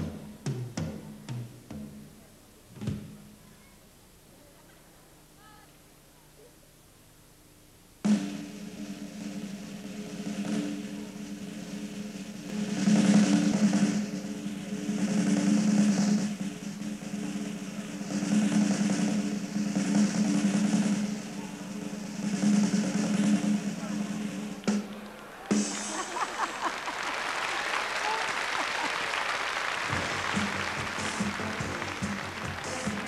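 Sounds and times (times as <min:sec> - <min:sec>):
snare drum roll: 0:08.0 - 0:33.0.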